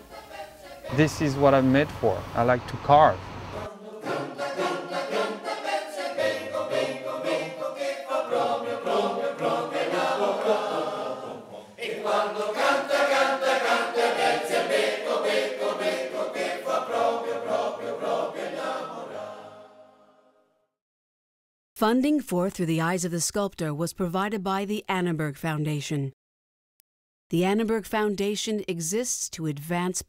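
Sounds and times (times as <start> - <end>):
choir singing sustained chords: 0.0 - 2.5, 3.4 - 20.4.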